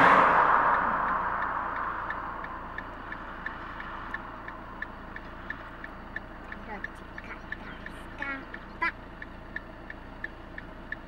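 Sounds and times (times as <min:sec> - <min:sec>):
rush of noise: 0:00.0 - 0:05.8
short high ticks: 0:00.4 - 0:11.0.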